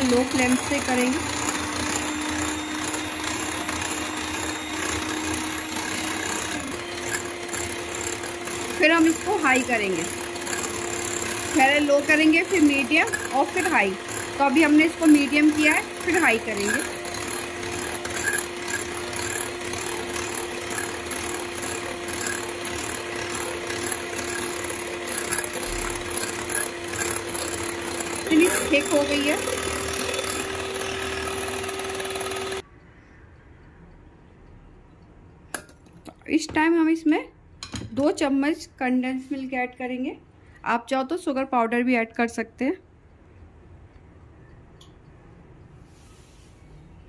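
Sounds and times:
electric hand mixer running: 0.0s - 32.6s.

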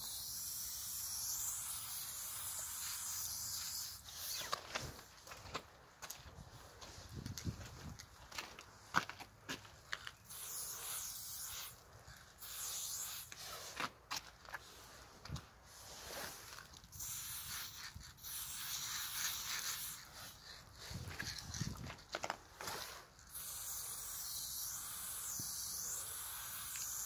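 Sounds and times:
spray paint can hissing: 0.0s - 4.6s, 10.2s - 13.8s, 15.8s - 21.8s, 22.6s - 27.0s.

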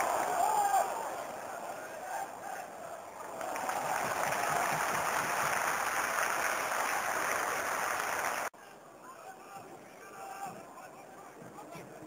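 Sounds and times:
stadium crowd cheering and clapping: 0.0s - 8.5s.

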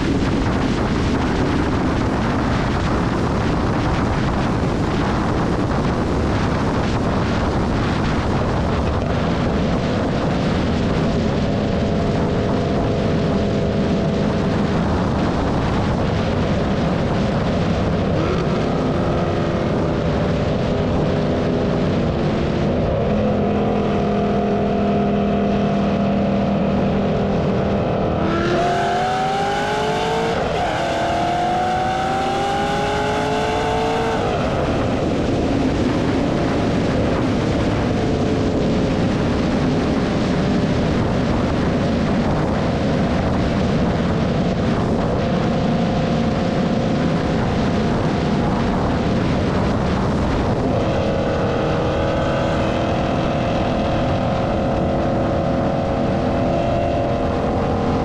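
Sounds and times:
car exhaust cruising: 0.0s - 58.0s
road and wind noise: 0.0s - 58.0s
car engine revving through gears: 27.8s - 34.7s, 50.4s - 58.0s.

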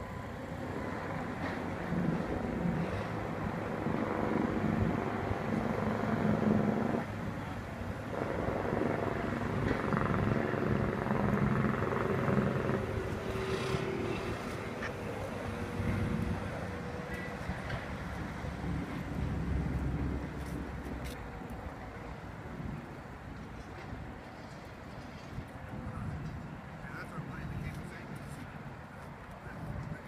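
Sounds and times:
outboard motor droning: 0.0s - 21.1s.

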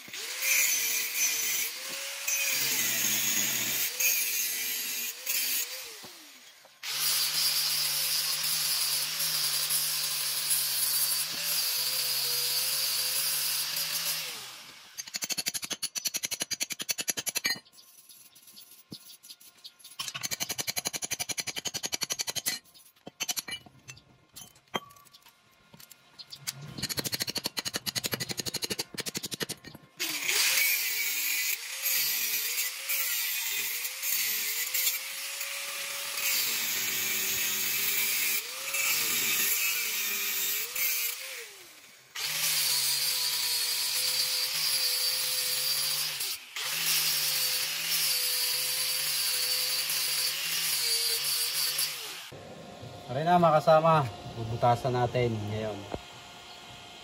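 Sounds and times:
angle grinder cutting steel pipe: 0.0s - 19.1s, 26.8s - 52.4s
metal clinks and knocks: 22.1s - 27.2s.

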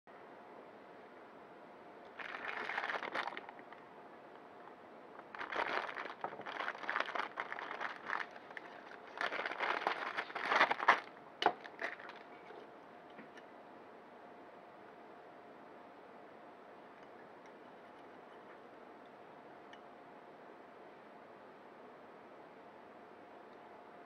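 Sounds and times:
plastic bag crinkling: 2.1s - 3.8s, 5.2s - 12.5s.

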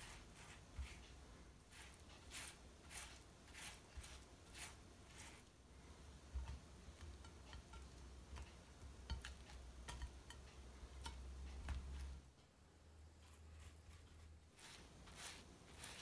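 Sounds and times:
slices tapping on ceramic plate: 6.3s - 12.2s.

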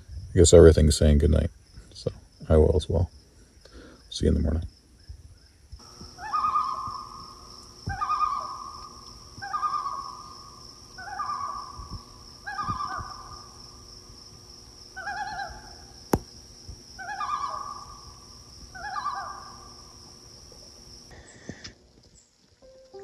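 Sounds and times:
high-pitched insect drone: 5.8s - 16.2s.

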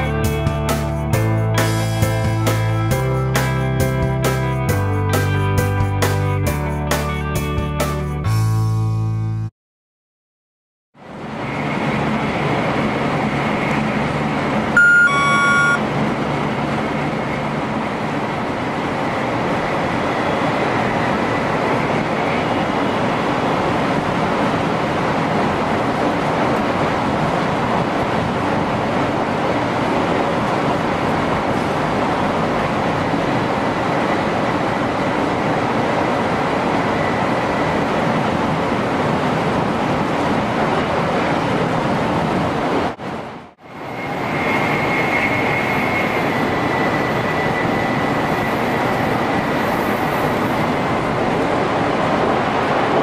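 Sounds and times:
train running at speed: 0.0s - 8.6s, 11.0s - 53.0s
short chime in cab: 14.8s - 15.8s.

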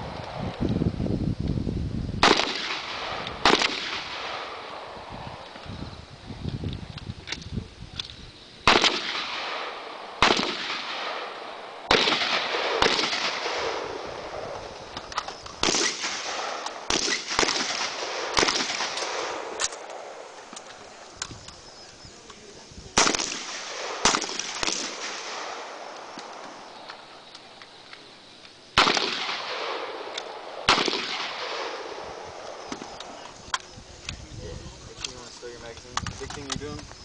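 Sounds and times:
rifle shots echoing: 2.2s - 5.5s, 8.6s - 20.7s, 23.0s - 27.2s, 28.8s - 33.2s.

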